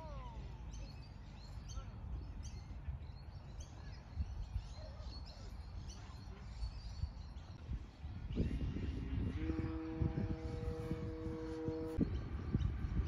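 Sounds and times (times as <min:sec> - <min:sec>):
small birds chirping: 0:00.0 - 0:13.0
low outdoor rumble: 0:07.6 - 0:13.0.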